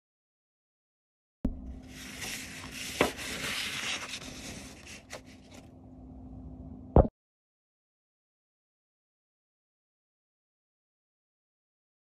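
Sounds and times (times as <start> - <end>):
faint steady hum: 1.5 - 7.1
scratchy rubbing on paper: 1.9 - 5.6.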